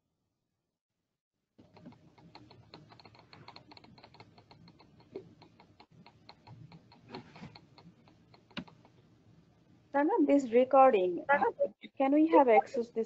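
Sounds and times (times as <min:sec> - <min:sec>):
keyboard keys clicking: 0:01.6 - 0:09.0.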